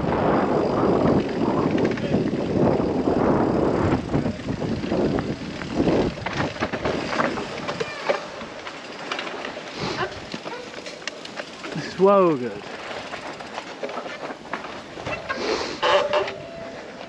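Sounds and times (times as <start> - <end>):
wind rushing over microphone: 0.0 - 7.8
bike clattering over bumps: 0.0 - 17.0
tyres rolling on dirt: 0.0 - 17.0
rattles and clicks: 1.0 - 2.6.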